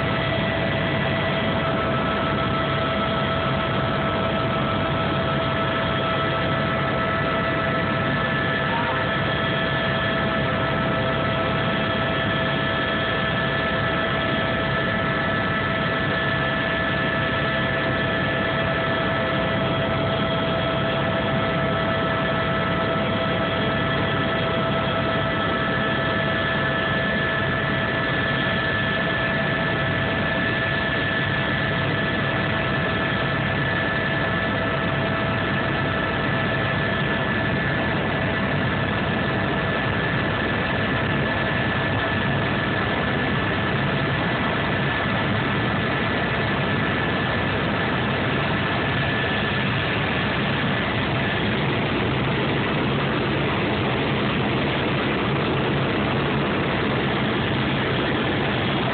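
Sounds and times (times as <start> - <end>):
constant whining tones: 0.0 - 58.9
helicopter engine and rotor drone: 0.0 - 58.9.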